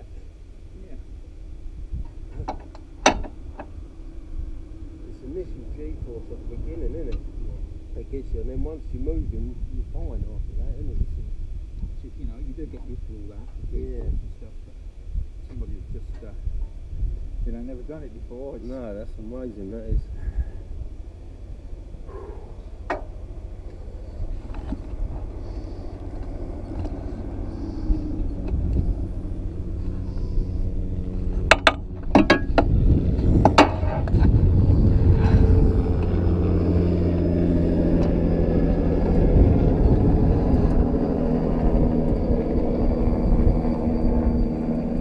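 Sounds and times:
vehicle engine rumbling: 0:00.0 - 0:45.0
sharp knocks: 0:31.5 - 0:32.7.

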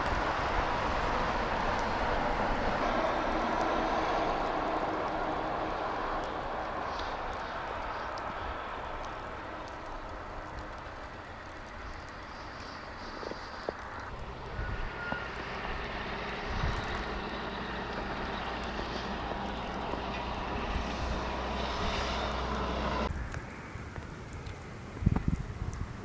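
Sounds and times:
road noise: 0:00.0 - 0:26.0
vehicle engine running: 0:13.1 - 0:23.1.

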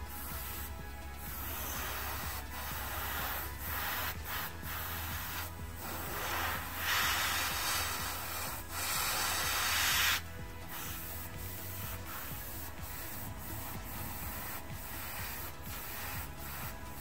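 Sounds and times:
airbrush spraying hiss: 0:00.0 - 0:17.0.

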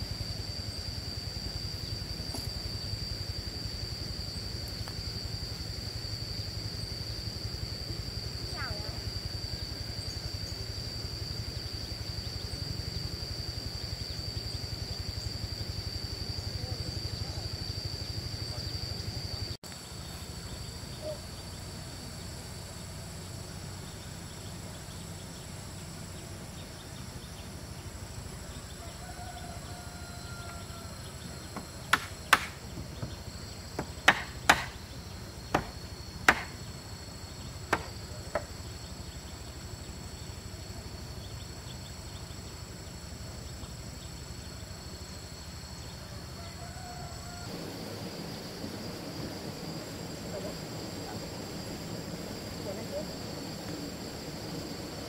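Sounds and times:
insects droning: 0:00.0 - 0:55.0
sharp tool strikes on wood: 0:31.6 - 0:33.1, 0:33.8 - 0:34.8, 0:35.5 - 0:36.6, 0:37.7 - 0:38.5.

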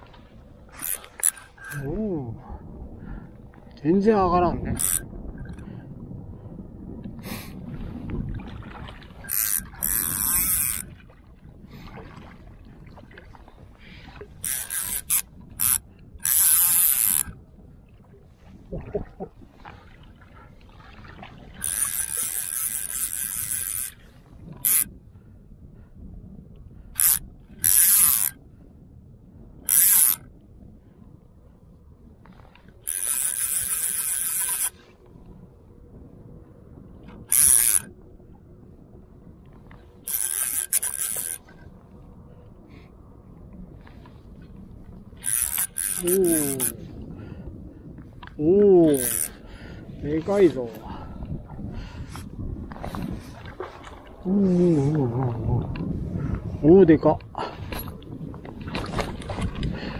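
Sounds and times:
fly reel drag buzzing: 0:00.7 - 0:01.9, 0:04.8 - 0:05.6, 0:09.2 - 0:10.9, 0:14.4 - 0:17.4, 0:21.6 - 0:24.0, 0:24.6 - 0:24.9, 0:27.0 - 0:28.4, 0:29.7 - 0:30.2, 0:32.8 - 0:34.8, 0:37.3 - 0:37.9, 0:40.0 - 0:41.5, 0:45.2 - 0:46.8, 0:48.8 - 0:49.4.

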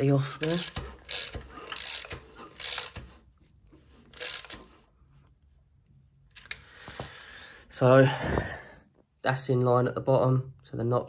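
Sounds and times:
hand ratchet clicking: 0:00.4 - 0:03.2, 0:04.1 - 0:04.7.

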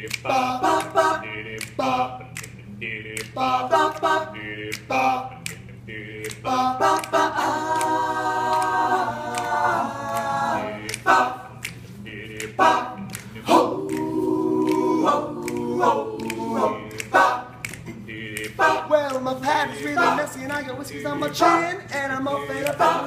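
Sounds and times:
male group singing close harmony: 0:00.0 - 0:23.0
sharp clicks: 0:01.5 - 0:04.0, 0:16.2 - 0:19.3.

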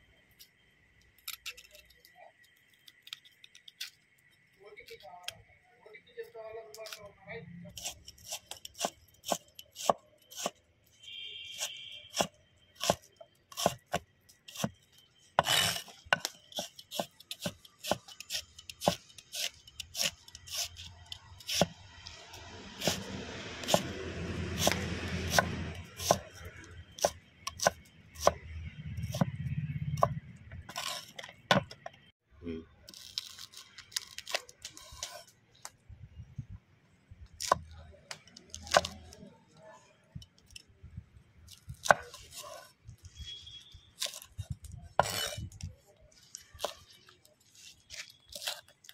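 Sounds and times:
cleaver chopping on wooden board: 0:12.1 - 0:14.0, 0:15.4 - 0:20.7, 0:21.5 - 0:21.8, 0:23.6 - 0:23.9, 0:24.6 - 0:26.3, 0:27.0 - 0:28.4.

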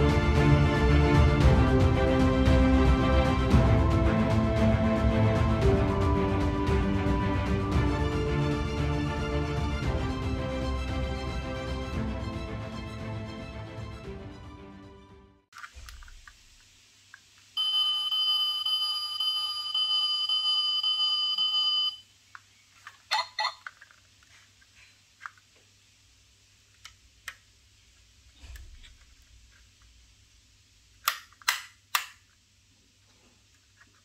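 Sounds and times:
sharp clicks of toy hood: 0:31.0 - 0:32.2.

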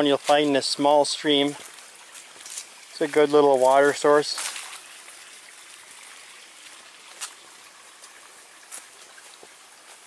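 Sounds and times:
stream trickling: 0:00.0 - 0:10.0.

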